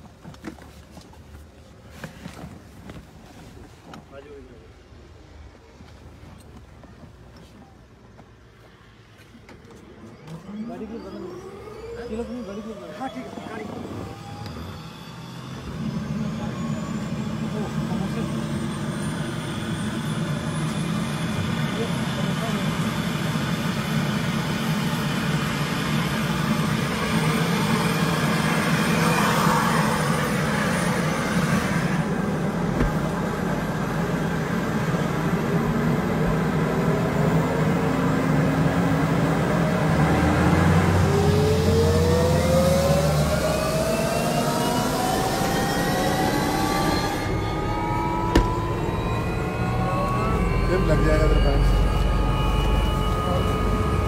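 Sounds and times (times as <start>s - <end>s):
rising whine: 9.5s - 54.0s
helicopter engine hum: 10.3s - 40.2s, 40.8s - 54.0s.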